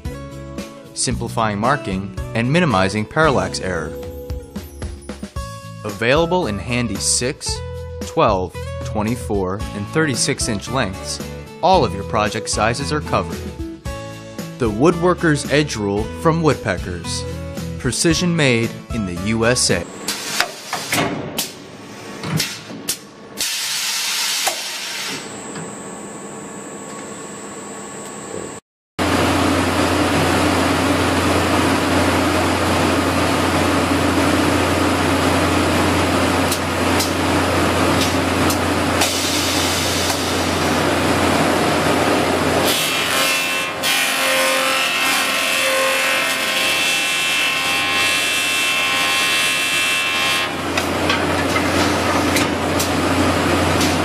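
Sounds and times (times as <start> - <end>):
high ringing tone: 25.2 - 27.0
woodworking machine cutting boards: 28.3 - 54.0.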